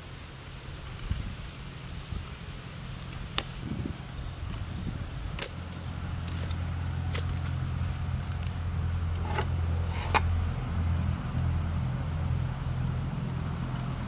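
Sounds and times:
steady low hum: 0:00.0 - 0:14.0
chickens set on wicker basket: 0:05.3 - 0:10.3.

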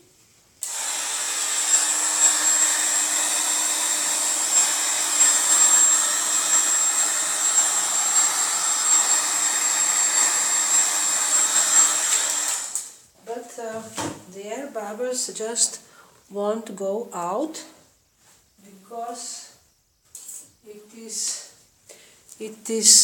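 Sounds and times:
hair dryer blowing: 0:00.6 - 0:12.9.

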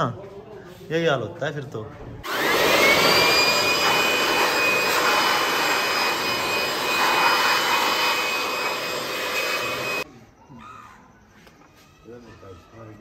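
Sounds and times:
electric air blower whining: 0:02.2 - 0:10.1.

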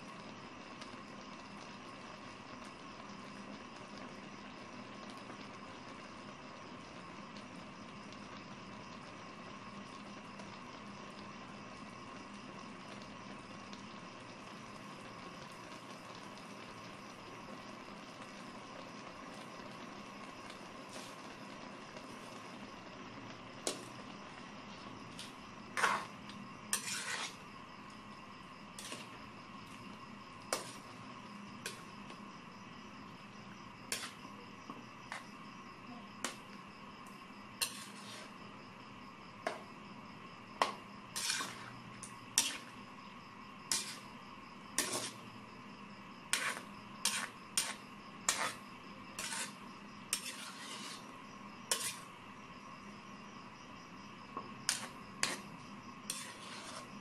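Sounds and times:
faint steady hiss: 0:00.0 - 0:57.0
metal spatula scraping a wok: 0:25.2 - 0:27.4, 0:28.8 - 0:29.2, 0:30.5 - 0:31.0, 0:31.6 - 0:31.9, 0:33.9 - 0:34.3, 0:35.1 - 0:35.3, 0:37.6 - 0:38.4, 0:40.6 - 0:42.8, 0:43.7 - 0:44.1, 0:44.8 - 0:45.3, 0:46.3 - 0:51.1, 0:51.7 - 0:52.1, 0:54.7 - 0:57.0.

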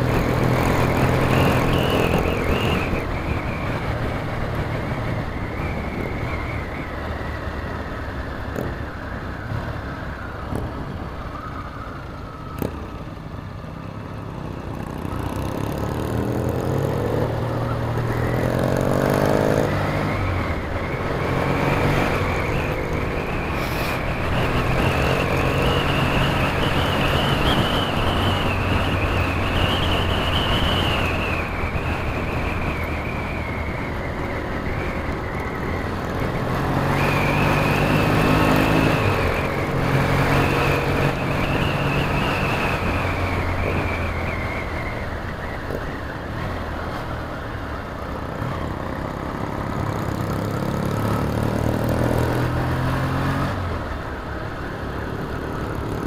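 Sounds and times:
wind rush on helmet: 0:00.0 - 0:18.9, 0:19.7 - 0:56.0
motorcycle engine revving: 0:48.2 - 0:54.1.

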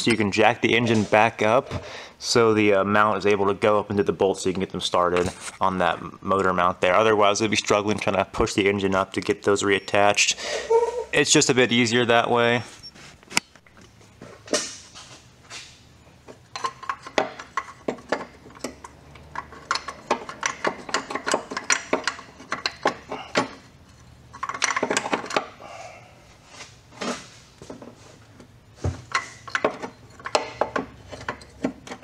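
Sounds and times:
metallic clinks and knocks: 0:16.5 - 0:25.5, 0:29.1 - 0:32.0.

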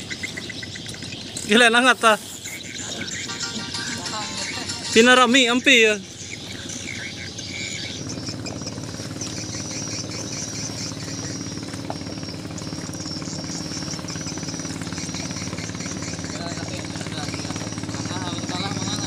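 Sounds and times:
boat engine idling: 0:00.0 - 0:19.0
high-pitched chirping: 0:02.5 - 0:08.8.

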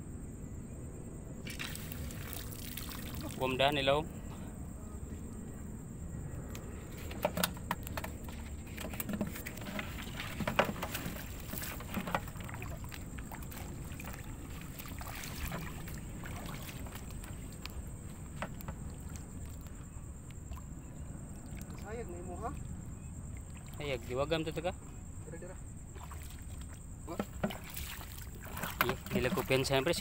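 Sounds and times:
steady low rumble: 0:00.0 - 0:07.1
water splashing and sloshing: 0:01.4 - 0:04.5, 0:06.1 - 0:24.8, 0:25.6 - 0:30.0
feet wading through water: 0:01.5 - 0:03.6, 0:08.2 - 0:20.7, 0:23.3 - 0:24.2, 0:25.9 - 0:30.0.

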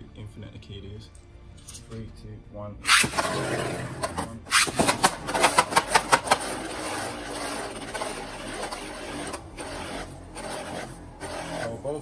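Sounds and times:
spinning tops whirring: 0:04.5 - 0:11.8.

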